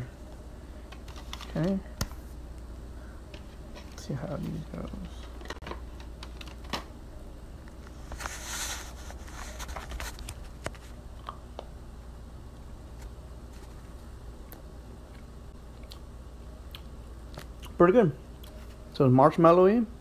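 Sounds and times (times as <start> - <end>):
low room hum: 0.0 - 20.0
crinkly plastic rustle: 7.9 - 11.0.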